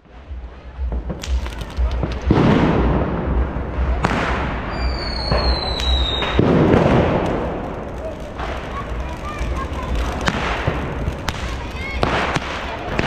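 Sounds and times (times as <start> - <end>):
firecrackers banging: 0.0 - 13.0
loud firework blasts: 0.0 - 13.0
high falling firework whistle: 4.7 - 6.4.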